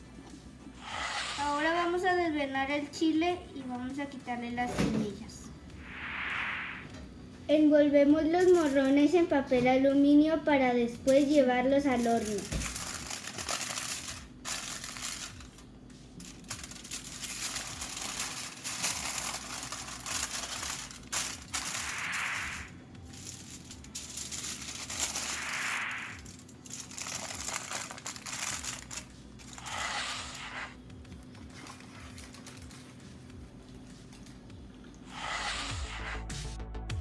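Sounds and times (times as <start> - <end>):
aluminium foil crinkling: 8.4 - 9.0, 11.1 - 29.8, 31.4 - 33.2.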